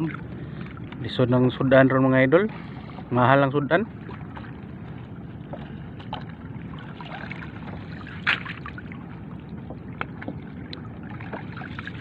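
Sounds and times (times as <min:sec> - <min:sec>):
water sloshing around wader: 0:00.0 - 0:12.0
small splashes: 0:03.9 - 0:12.0.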